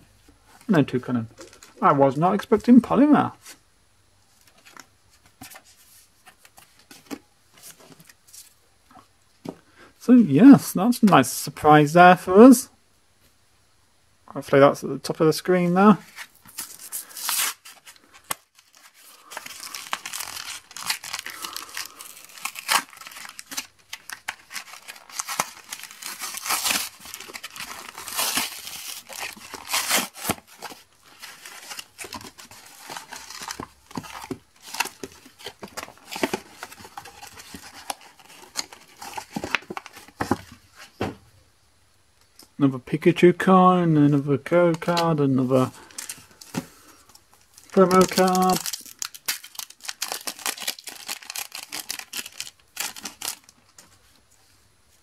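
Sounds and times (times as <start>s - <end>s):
foil and plastic packaging tearing: 16.5s - 40.3s, 47.5s - 53.6s.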